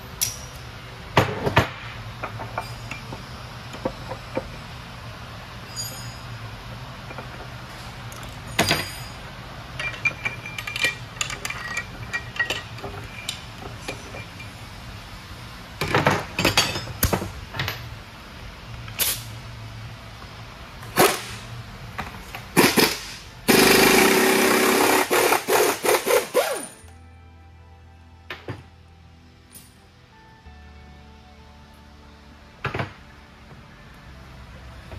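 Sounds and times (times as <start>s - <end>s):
metal parts and tools clinking: 0.1s - 0.7s, 2.2s - 3.2s, 5.6s - 6.4s, 7.1s - 14.6s, 15.8s - 17.9s, 29.5s - 29.8s
loud air tool running: 20.9s - 21.5s, 22.6s - 26.9s.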